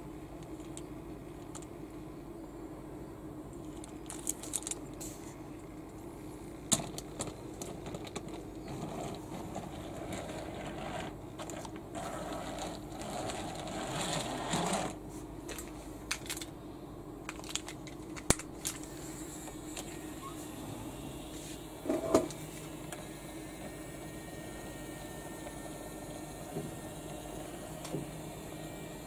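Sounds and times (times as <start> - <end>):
toy wheels rolling on track: 7.6 - 15.0
toy train clicking on track: 9.0 - 15.0.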